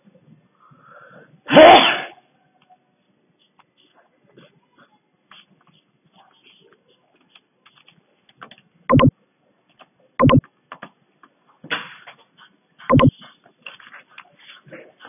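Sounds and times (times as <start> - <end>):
keyboard and mouse clicks: 8.9 - 9.1, 10.2 - 10.4, 12.9 - 13.1.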